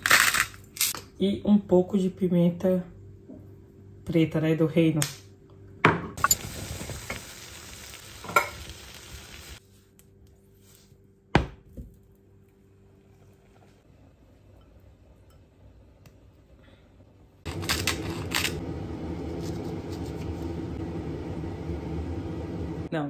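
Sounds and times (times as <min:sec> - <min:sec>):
steady low hum: 0:12.3 - 0:23.0.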